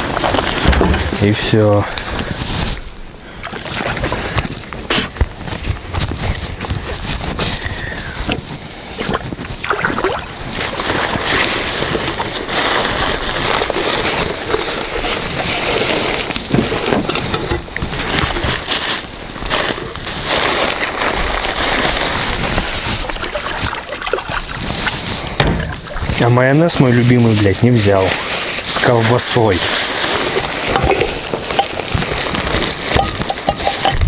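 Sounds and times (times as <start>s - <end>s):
water sloshing and splashing: 9.0s - 17.0s, 18.0s - 26.3s.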